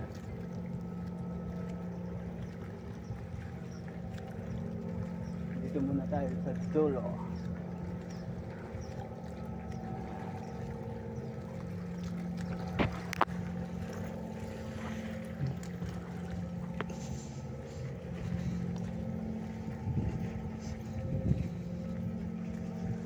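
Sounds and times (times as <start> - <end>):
boat engine humming: 0.0 - 23.0.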